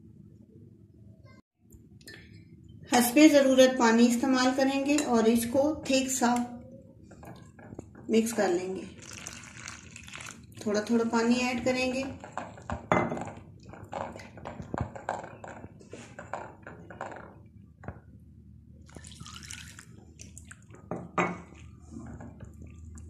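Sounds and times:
water pouring: 8.8s - 10.6s, 18.9s - 20.7s.

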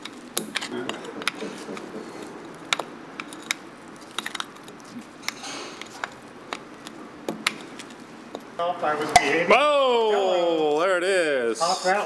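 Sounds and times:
metal tool scraping: 5.2s - 6.1s.

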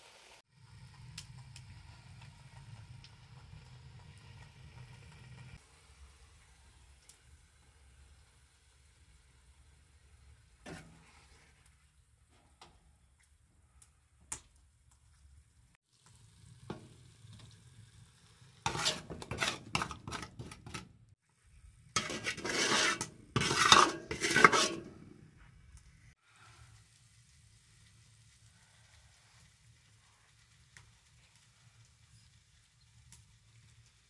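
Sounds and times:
wet scraping and clattering: 18.7s - 20.9s, 21.9s - 25.1s
metal ladle clinking: 22.0s - 25.0s.

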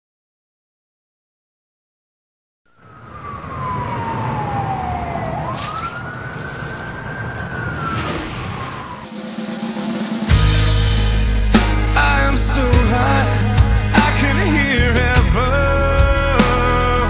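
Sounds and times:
low city traffic rumble: 2.7s - 9.2s
siren wailing: 2.7s - 10.0s
brief whoosh: 5.4s - 10.0s.

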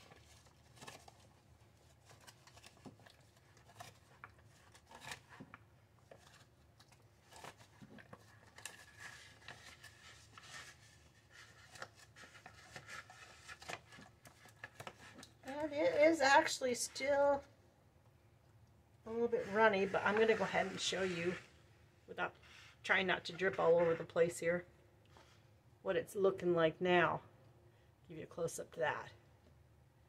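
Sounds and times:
foil pouch crinkling: 0.0s - 16.2s.

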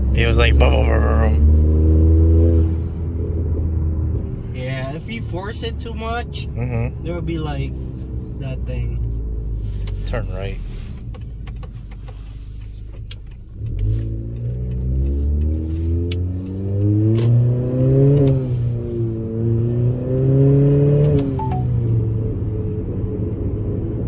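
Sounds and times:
car engine accelerating hard: 0.0s - 4.4s, 13.6s - 21.4s.

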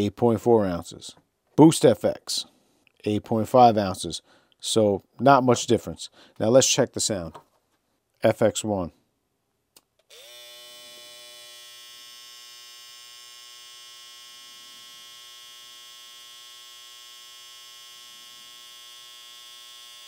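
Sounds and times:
hair trimmer motor whine: 10.1s - 20.0s.

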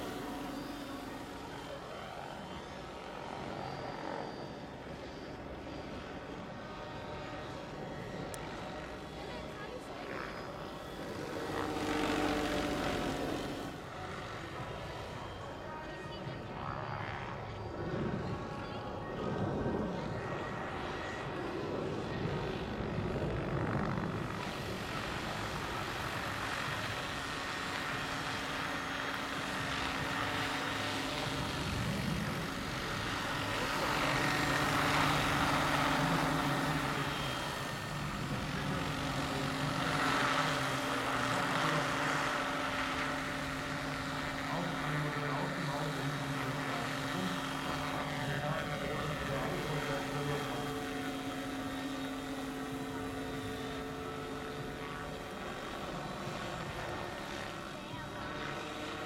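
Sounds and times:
helicopter rotor whirr: 0.0s - 59.0s
electric motor whine: 22.0s - 59.0s.

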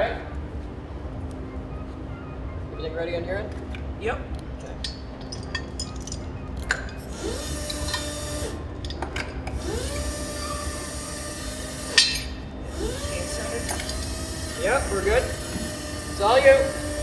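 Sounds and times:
hydraulic pump motor whining: 6.6s - 17.0s
sharp metal clack: 11.9s - 12.4s.

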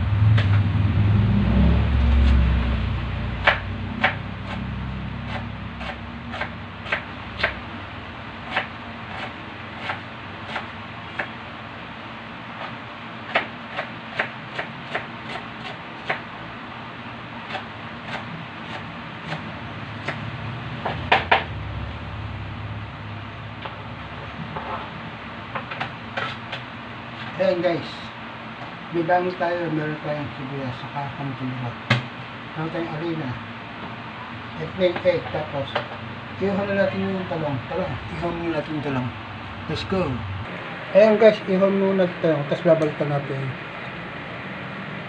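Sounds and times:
low rumble: 0.0s - 8.3s, 19.8s - 24.5s, 37.4s - 41.0s
knife chopping on plastic board: 3.4s - 4.2s.

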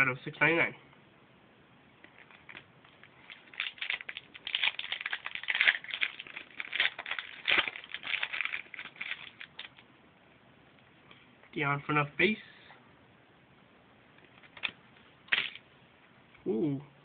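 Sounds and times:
wrapper tearing and crinkling: 2.1s - 9.8s, 14.4s - 15.6s.

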